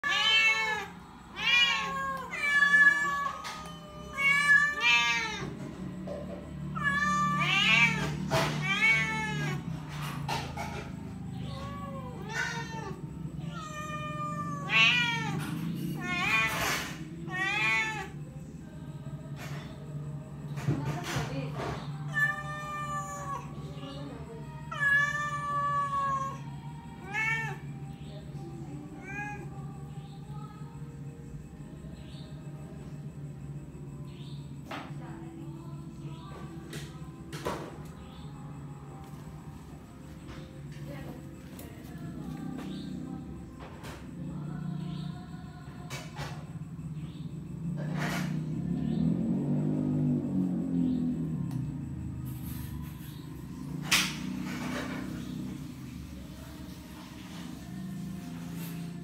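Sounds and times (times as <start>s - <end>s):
cats meowing: 0.0s - 18.5s, 21.6s - 30.9s.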